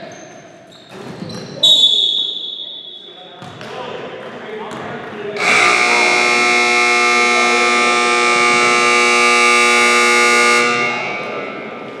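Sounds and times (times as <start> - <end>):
scoreboard horn long tone: 5.4 - 12.0.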